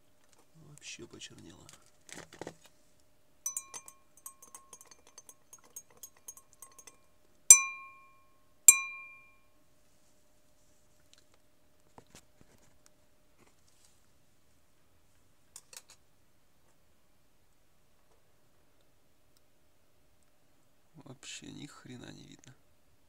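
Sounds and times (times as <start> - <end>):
glass clinking: 3.5 - 9.4
sharp ringing glass strikes: 3.5 - 9.5.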